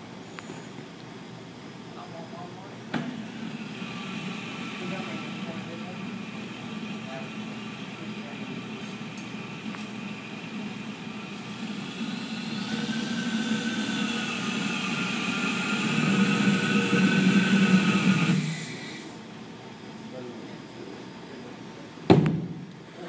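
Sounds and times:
small jet engine rushing and whining: 3.0s - 19.2s.

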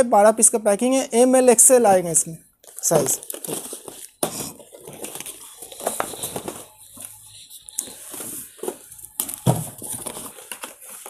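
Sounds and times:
cardboard boxes knocking and rustling: 3.3s - 6.8s, 8.0s - 11.0s.

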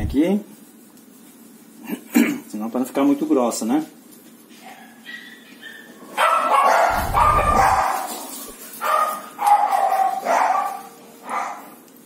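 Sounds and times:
dog barking loudly: 4.7s - 8.2s, 8.8s - 11.7s.

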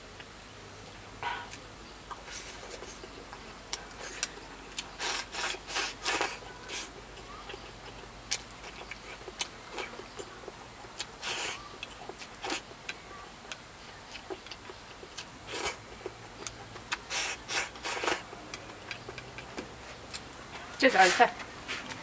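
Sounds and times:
person slurping and chewing: 1.3s - 12.8s, 14.1s - 19.4s
chopsticks clicking: 18.5s - 20.3s.

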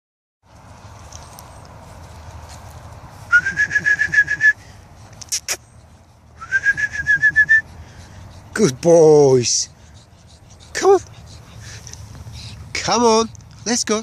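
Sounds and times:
loud warbling whistle: 3.3s - 4.6s.

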